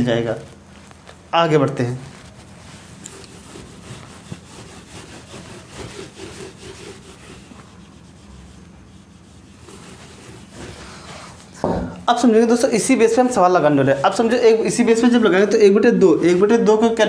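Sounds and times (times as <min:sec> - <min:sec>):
duster rubbing on whiteboard: 0:02.0 - 0:11.8.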